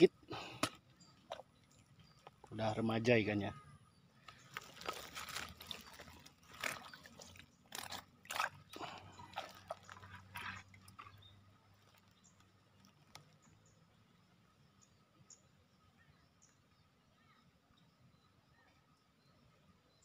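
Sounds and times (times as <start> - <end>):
rustling handling noise: 4.3 - 7.2.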